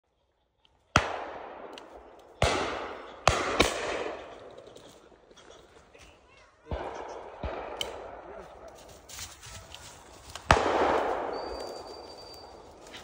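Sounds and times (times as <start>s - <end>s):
shotgun shots echoing: 0.9s - 5.2s, 6.6s - 8.7s, 10.3s - 13.0s.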